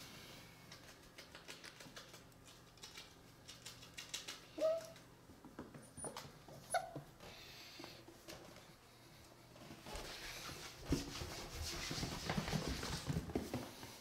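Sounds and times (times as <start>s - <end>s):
claws clicking on wooden floor: 0.7s - 6.3s
puppy whining: 4.6s - 5.0s, 5.8s - 7.1s.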